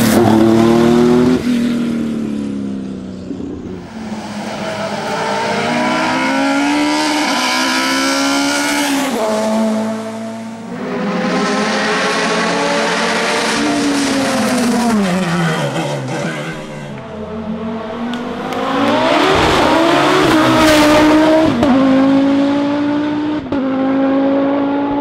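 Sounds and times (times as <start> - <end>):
rally car engine accelerating: 0.0 - 25.0
racing car engine slowing: 0.1 - 23.3.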